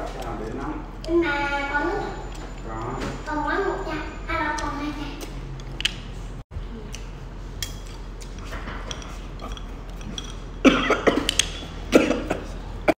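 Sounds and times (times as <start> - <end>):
woman coughing: 10.6 - 11.3, 11.9 - 13.0.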